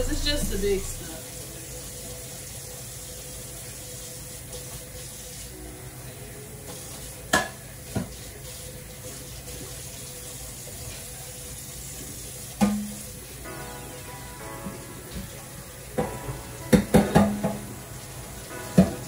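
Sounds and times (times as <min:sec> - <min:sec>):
dishes being washed by hand: 0:06.6 - 0:13.4, 0:14.3 - 0:19.0.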